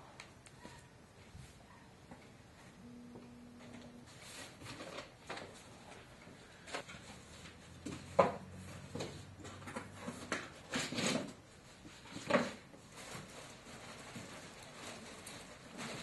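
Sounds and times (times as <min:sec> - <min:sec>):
tools and parts clattering: 0:07.8 - 0:11.5.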